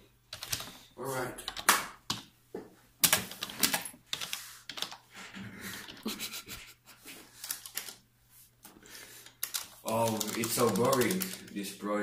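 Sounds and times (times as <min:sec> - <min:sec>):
keyboard keys clicking: 0:00.3 - 0:00.7, 0:07.4 - 0:08.0, 0:09.3 - 0:11.6.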